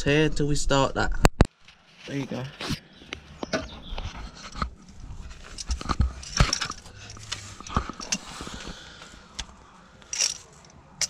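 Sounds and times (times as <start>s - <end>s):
metal ratchet clicks and scrapes: 5.3s - 8.3s, 9.4s - 10.8s.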